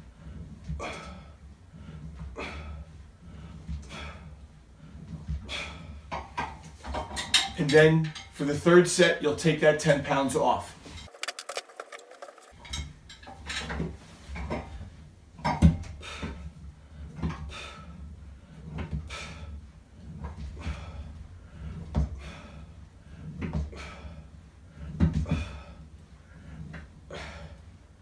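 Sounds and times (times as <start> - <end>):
gym cables and pulleys clacking: 6.0 - 8.6.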